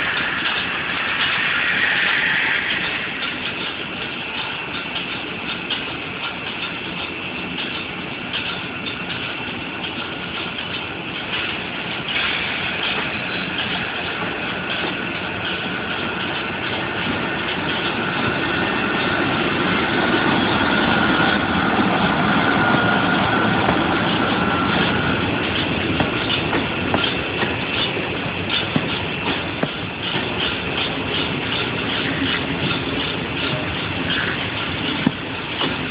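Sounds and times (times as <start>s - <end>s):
electric locomotive whine: 0.0s - 35.9s
train rumble: 0.0s - 35.9s.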